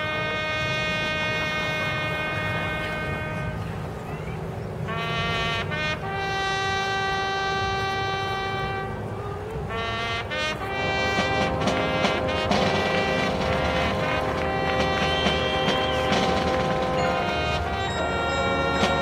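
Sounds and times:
brass section playing chords: 0.0s - 3.7s, 4.9s - 9.1s, 9.7s - 19.0s
marching band with percussion: 9.6s - 19.0s.

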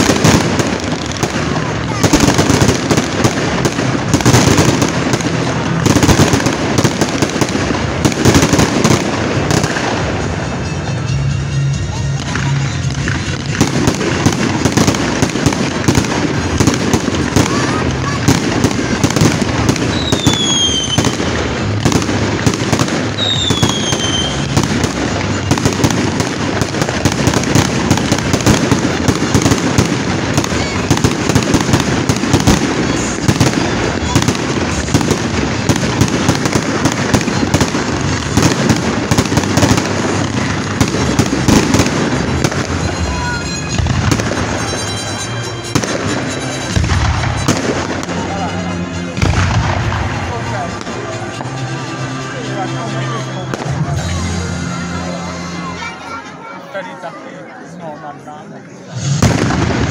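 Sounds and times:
fireworks bangs and crackles: 0.0s - 56.5s, 58.6s - 59.9s
falling firework whistles: 19.8s - 21.1s, 23.2s - 24.6s.

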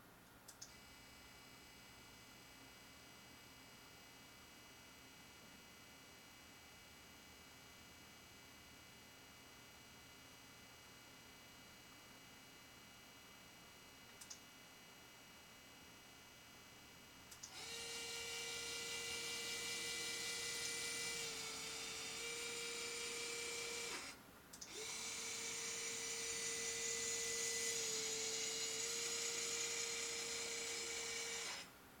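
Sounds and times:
motor drive whining: 17.4s - 31.7s.

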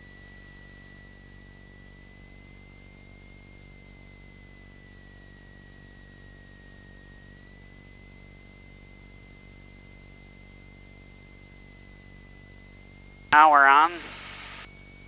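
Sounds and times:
low hum and hiss: 13.4s - 14.7s.

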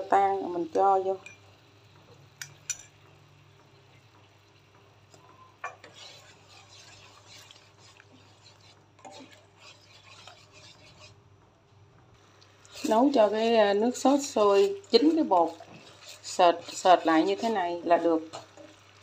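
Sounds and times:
spatula knocking wok: 1.2s - 11.2s, 12.7s - 18.8s
spatula scraping and swishing: 5.8s - 11.2s, 12.6s - 18.6s.

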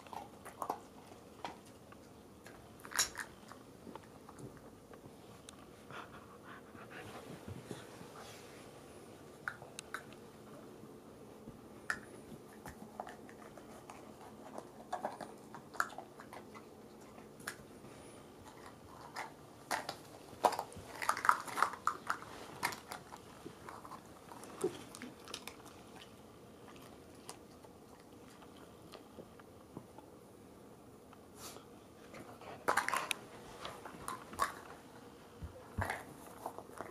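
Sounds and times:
dog chewing: 0.0s - 4.7s, 11.9s - 29.5s, 32.2s - 34.8s.

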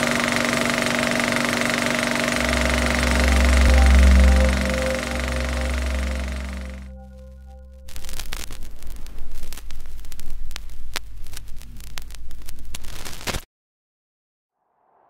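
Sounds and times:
low hum: 2.2s - 8.6s
music: 2.5s - 8.1s
film crackle hiss: 7.8s - 13.4s.

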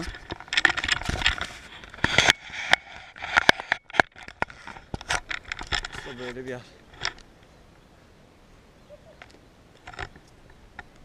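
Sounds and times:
handling noise rubbing and scraping: 0.0s - 7.2s.

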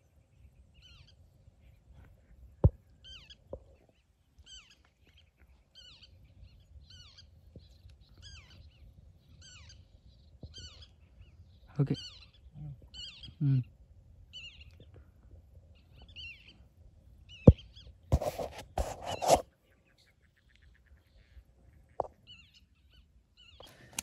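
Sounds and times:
bird calling: 3.0s - 13.7s
rustling noise: 18.1s - 19.4s.

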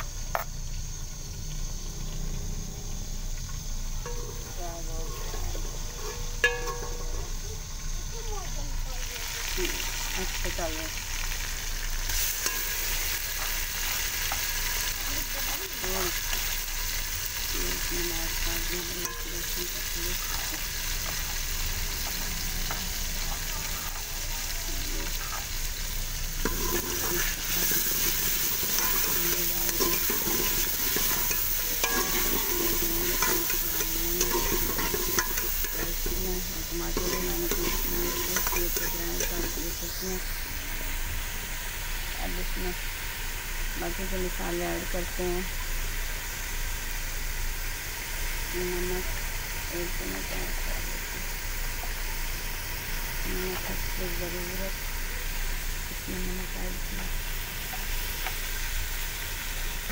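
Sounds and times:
food sizzling in hot oil: 0.0s - 59.9s
ladle scraping a steel pot: 4.0s - 7.3s, 26.4s - 39.8s.

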